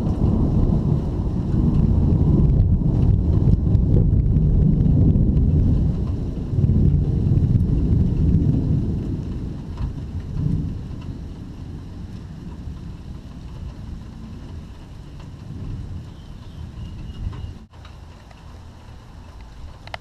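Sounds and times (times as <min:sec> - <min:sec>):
rolling thunder: 0:00.0 - 0:17.7.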